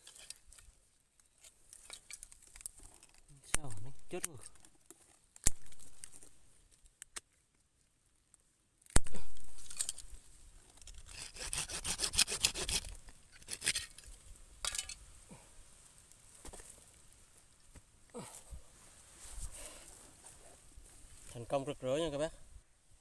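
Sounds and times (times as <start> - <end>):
spade scraping through roots: 10.8 - 15.0.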